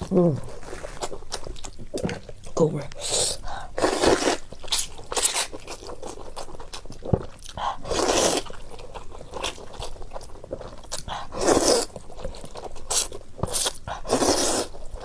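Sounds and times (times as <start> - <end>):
loud noodle slurps: 11.3 - 11.9, 13.5 - 14.8.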